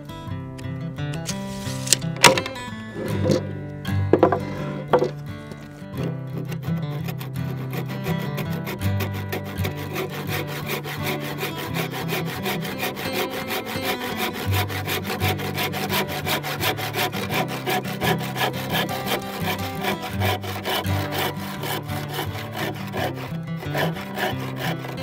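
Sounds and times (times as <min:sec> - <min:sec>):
handsaw cutting wood: 0:01.2 - 0:25.0.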